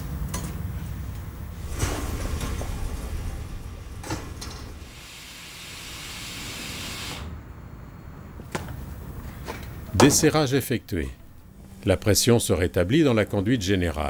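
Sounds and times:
compressed air hissing: 0:01.6 - 0:07.4.

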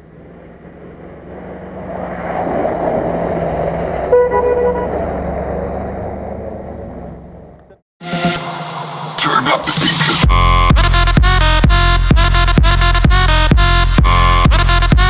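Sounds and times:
car engine running hard: 0:00.0 - 0:07.8
tyres churning through mud: 0:00.0 - 0:07.8
car horn toot: 0:04.1 - 0:05.3.

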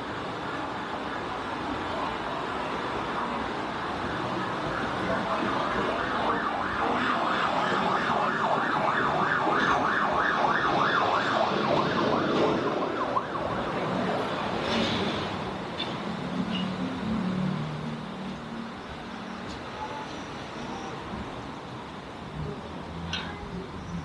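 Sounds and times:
traffic noise: 0:00.0 - 0:24.0
emergency vehicle siren yelping: 0:03.5 - 0:14.7.

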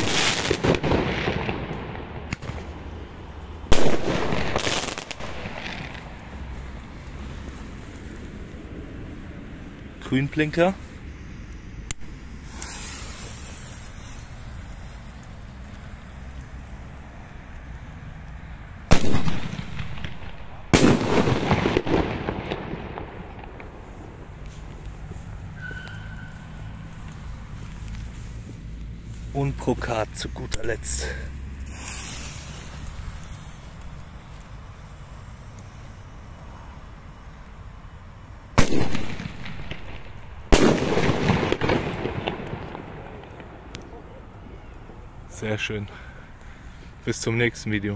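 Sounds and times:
firework shell bursting: 0:00.0 - 0:02.8, 0:11.9 - 0:15.4, 0:18.9 - 0:26.8, 0:31.6 - 0:35.3, 0:38.5 - 0:43.7
dense firework crackling: 0:00.0 - 0:47.9
firework shell bursts: 0:11.9 - 0:14.8, 0:30.5 - 0:34.4.

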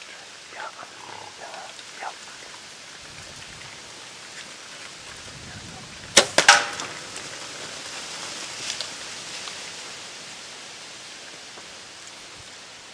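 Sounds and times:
steady hiss: 0:00.0 - 0:12.9
gunshot crack: 0:06.2 - 0:06.8.

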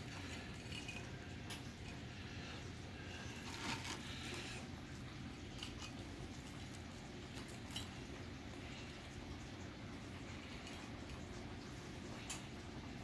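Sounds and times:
steady low hum: 0:00.0 - 0:13.0
soft rustles: 0:03.0 - 0:04.7.

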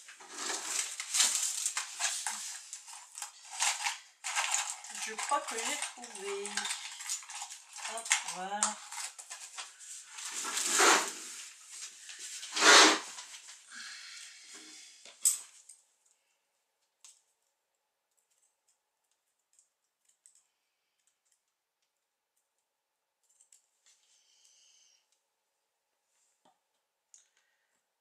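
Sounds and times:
craft materials rustling: 0:00.0 - 0:13.7.

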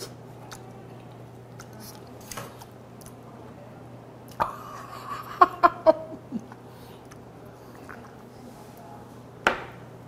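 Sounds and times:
wet chewing: 0:00.0 - 0:03.2.

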